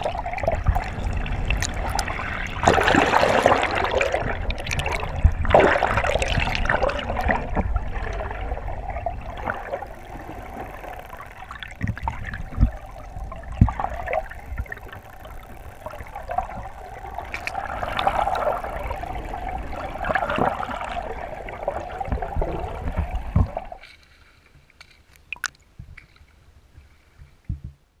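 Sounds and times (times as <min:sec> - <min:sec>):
faint ticks: 0:00.0 - 0:02.8, 0:09.2 - 0:21.0
water sloshing and gurgling: 0:00.0 - 0:27.8.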